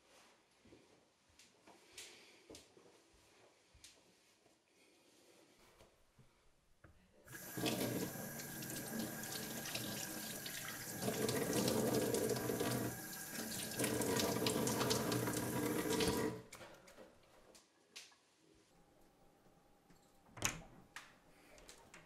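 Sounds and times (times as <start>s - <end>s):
faucet water running into sink: 7.3s - 16.5s.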